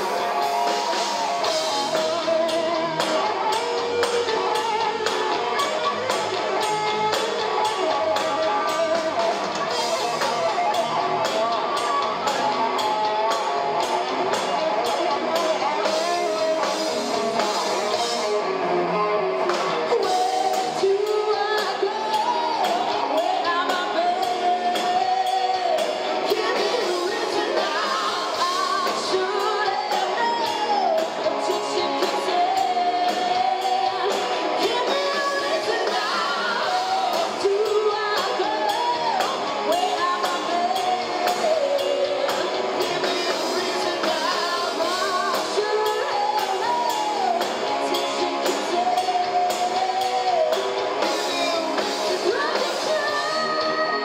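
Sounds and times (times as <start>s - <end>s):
woman singing: 0.0s - 18.4s, 19.0s - 54.0s
distorted electric guitars: 0.0s - 54.0s
drum kit steady beat: 0.0s - 54.0s.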